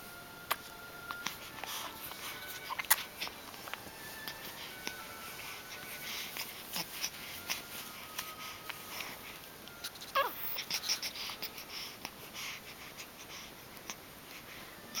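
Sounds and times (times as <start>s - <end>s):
baby breathy noises: 4.2s - 14.5s
baby squeaky vocal sound: 10.0s - 11.1s.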